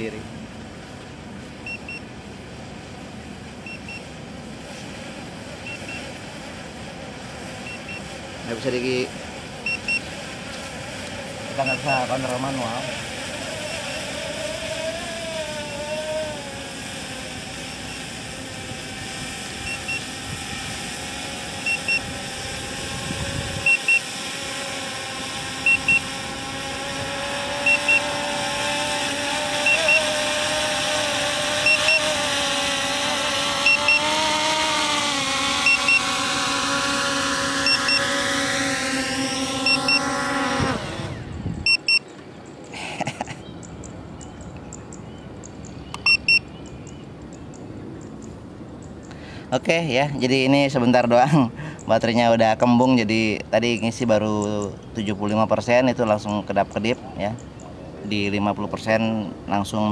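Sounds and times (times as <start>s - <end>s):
quadcopter propellers buzzing: 0.0s - 59.9s
double warning beep: 1.6s - 2.1s, 3.6s - 4.0s, 9.6s - 10.0s, 21.7s - 22.1s, 25.6s - 26.0s, 27.7s - 28.1s, 35.7s - 36.1s, 37.7s - 38.0s, 39.6s - 40.0s, 41.7s - 42.0s, 46.0s - 46.5s.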